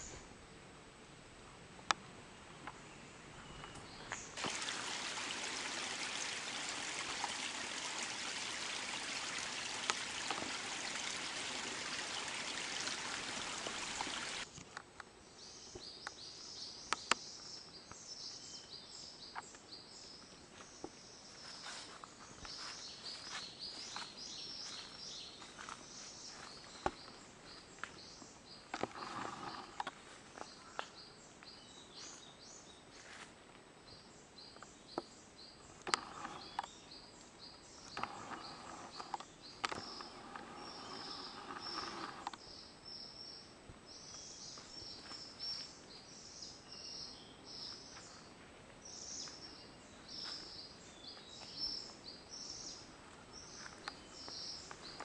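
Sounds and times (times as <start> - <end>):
stream rushing: 4.4 - 14.5.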